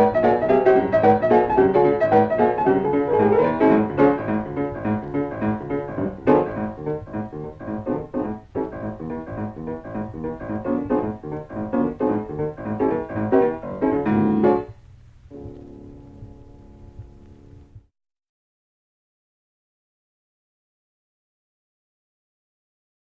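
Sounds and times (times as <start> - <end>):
ragtime piano piece: 0.0 - 17.8.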